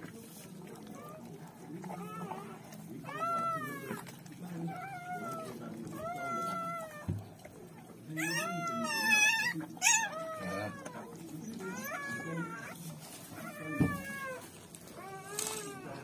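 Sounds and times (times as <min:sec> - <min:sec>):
puppy crying in squeals: 0:08.2 - 0:11.0, 0:11.6 - 0:12.8.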